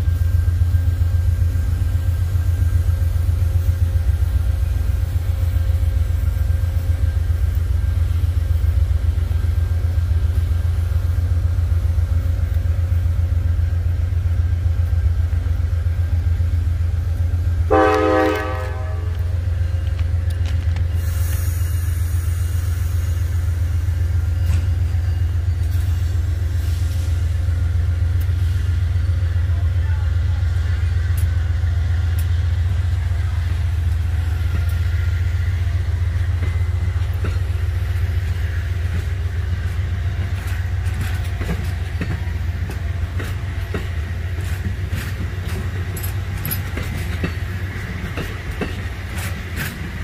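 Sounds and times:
freight train rumbling: 0.0s - 50.0s
locomotive air horn blast: 17.7s - 19.3s.

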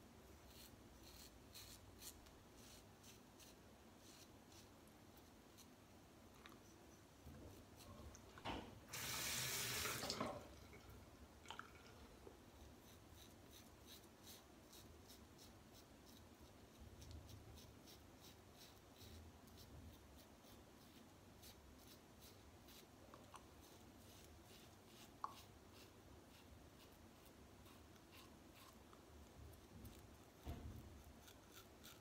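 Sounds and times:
tap water running: 8.4s - 12.0s
razor scraping stubble: 29.8s - 32.0s.

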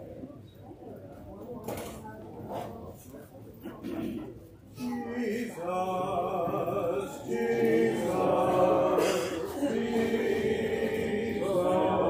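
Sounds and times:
congregation singing a hymn: 4.8s - 12.0s.

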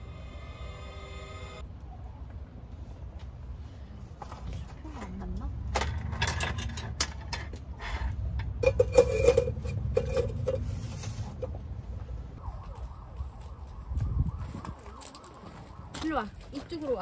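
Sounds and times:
low rumble: 0.0s - 2.2s.

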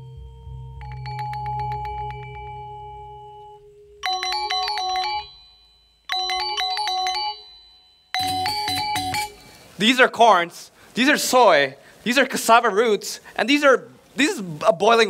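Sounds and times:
synth tone with ticking pulse: 0.0s - 6.5s
bright chiming melody: 0.0s - 9.6s.

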